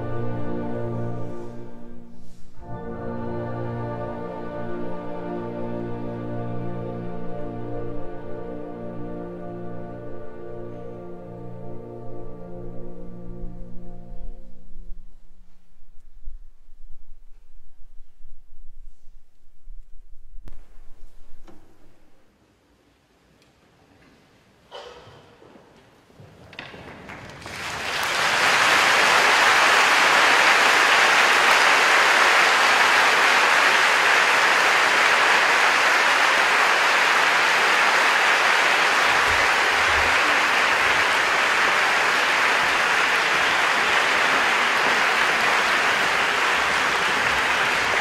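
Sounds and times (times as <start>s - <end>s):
audience applauding: 26.6s - 48.0s.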